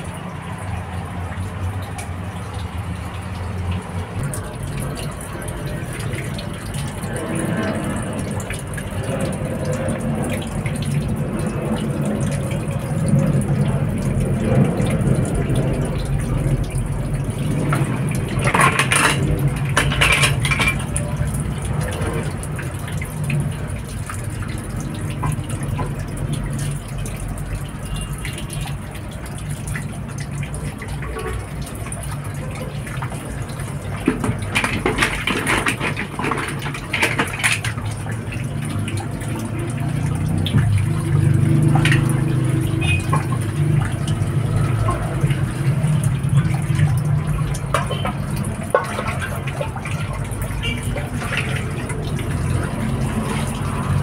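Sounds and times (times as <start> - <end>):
mussel shells clicking in a bowl: 34.0 - 38.9.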